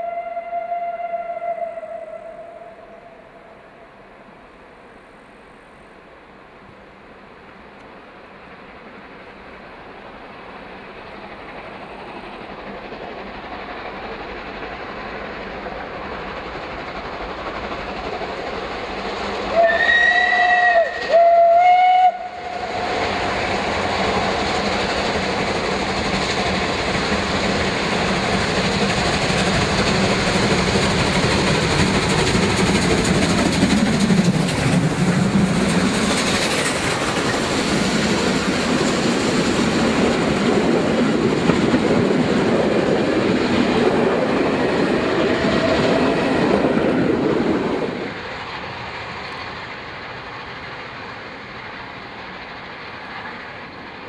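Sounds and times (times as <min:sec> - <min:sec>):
steam whistle blasts: 0:00.0 - 0:03.4, 0:19.5 - 0:22.7
steam locomotives working hard: 0:00.0 - 0:54.0
wheels clicking over rail joints: 0:23.6 - 0:54.0.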